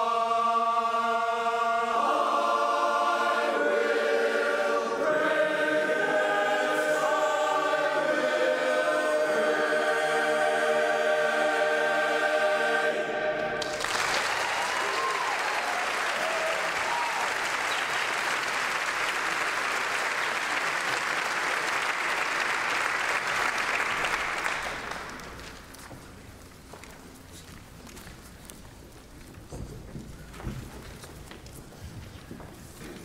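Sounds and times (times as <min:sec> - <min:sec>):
men's choir holding a chord: 0:00.0 - 0:13.8
audience cheering: 0:13.4 - 0:22.6
audience applauding: 0:13.6 - 0:25.7.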